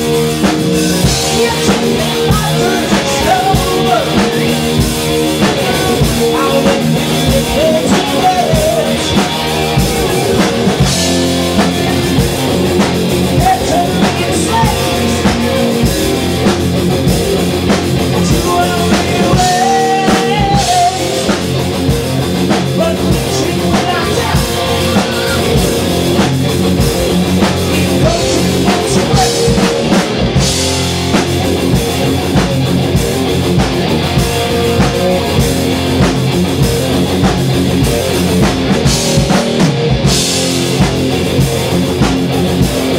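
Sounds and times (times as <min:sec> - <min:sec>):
bass guitar: 0:00.0 - 0:42.9
drum kit: 0:00.0 - 0:42.9
electric guitars: 0:00.0 - 0:42.9.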